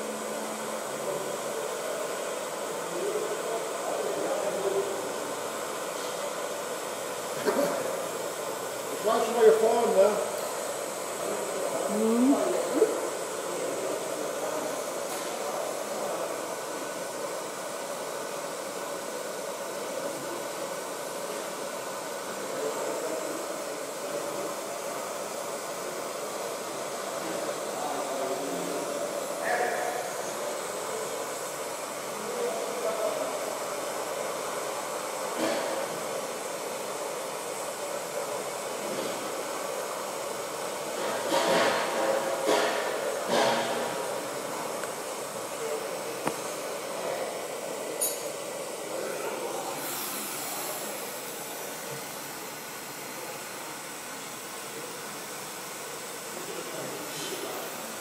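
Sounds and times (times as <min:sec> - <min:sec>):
welding arc hissing: 0:33.4 - 0:58.0.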